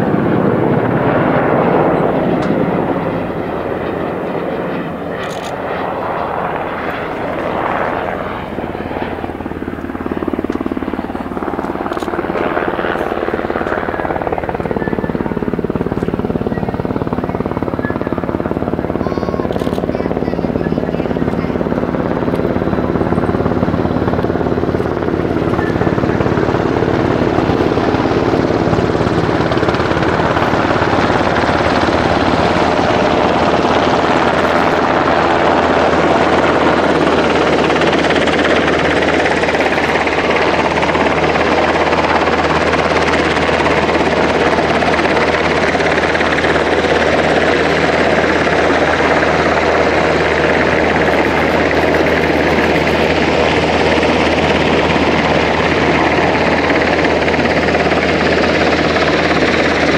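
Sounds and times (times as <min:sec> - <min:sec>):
helicopter engine whine: 0:00.0 - 0:59.9
helicopter rotor beating: 0:00.0 - 0:59.9.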